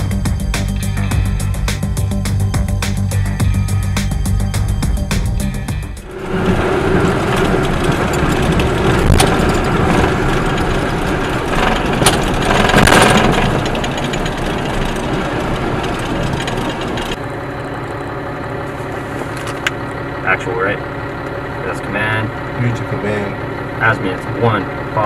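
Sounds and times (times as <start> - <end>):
diesel truck engine running: 0.0 - 25.0
rush of noise: 5.7 - 17.2.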